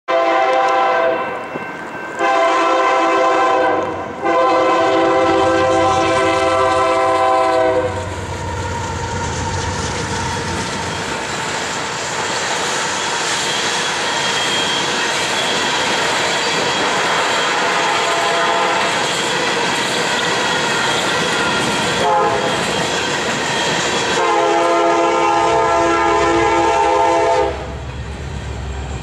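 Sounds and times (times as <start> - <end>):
locomotive air horn blasts: 0.1 - 1.4, 2.2 - 8.2, 17.4 - 19.0, 21.4 - 22.6, 24.2 - 27.8
locomotive engines rumbling: 0.5 - 29.0
train wheels clattering on rails: 5.2 - 26.9.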